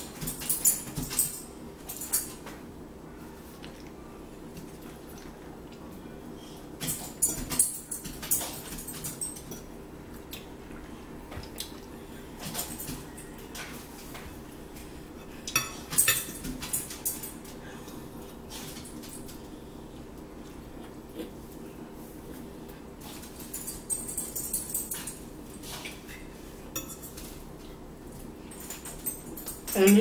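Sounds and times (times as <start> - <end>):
steady low hum: 0.0 - 30.0
forks clinking on plates: 6.8 - 9.7, 15.4 - 17.4, 23.0 - 26.0, 26.7 - 27.4, 28.5 - 30.0.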